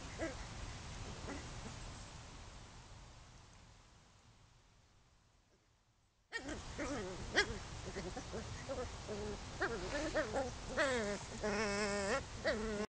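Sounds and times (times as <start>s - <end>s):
dog whining and yowling: 6.3s - 12.9s.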